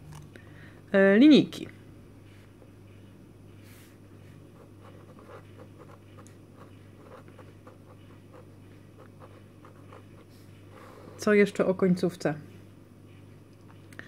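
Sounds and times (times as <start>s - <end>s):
pen writing on paper: 4.5s - 10.3s.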